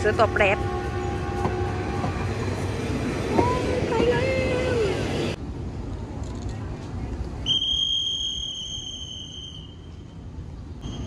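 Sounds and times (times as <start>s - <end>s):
high-pitched whistle-like tone: 7.4s - 10.1s.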